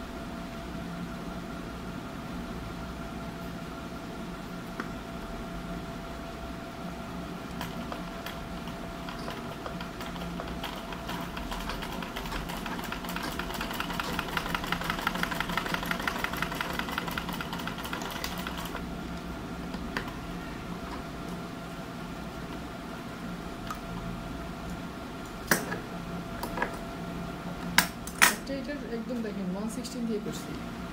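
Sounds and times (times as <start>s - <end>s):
sewing machine stitching: 7.6s - 18.8s.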